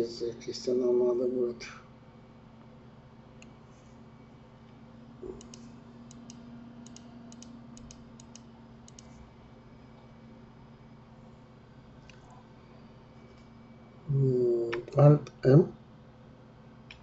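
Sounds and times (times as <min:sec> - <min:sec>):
faint steady hum: 0:00.0 - 0:17.0
computer mouse clicks: 0:05.2 - 0:09.2.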